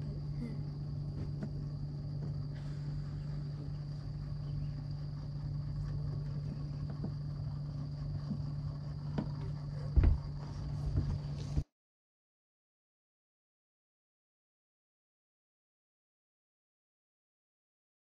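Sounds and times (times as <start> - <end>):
electric motor humming: 0.0 - 11.6
high insect trill: 0.0 - 11.6
light knocks on boat: 9.1 - 10.3.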